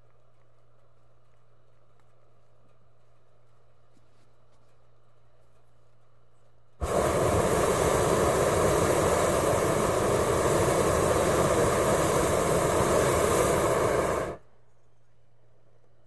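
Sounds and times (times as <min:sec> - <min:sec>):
faint low hum: 0:00.0 - 0:16.0
propane burner blast: 0:06.8 - 0:14.5.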